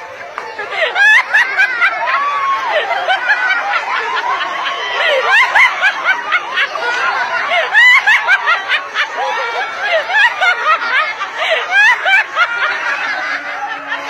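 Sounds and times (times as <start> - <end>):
people laughing hard: 0.0 - 14.0.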